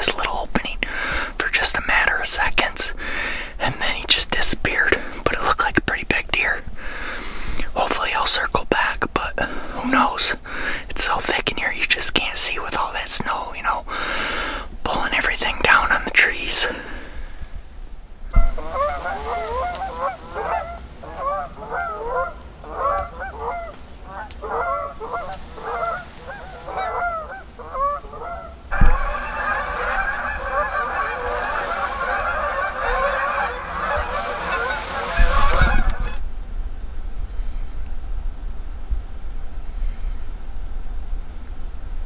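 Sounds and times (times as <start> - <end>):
geese honking: 18.3 - 36.2.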